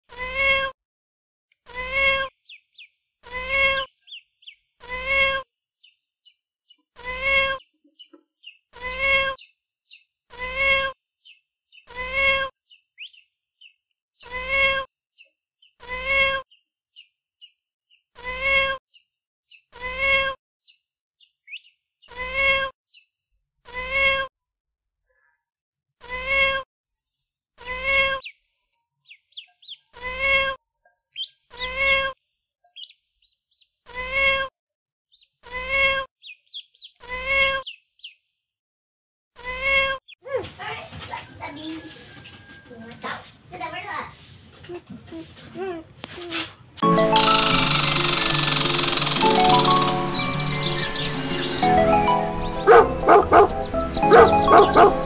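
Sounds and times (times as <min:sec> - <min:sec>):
high duckling peeps: 0:01.7 - 0:05.4, 0:06.2 - 0:23.0, 0:32.8 - 0:34.5, 0:35.1 - 0:38.2, 0:46.8 - 0:51.7, 0:52.6 - 0:55.0.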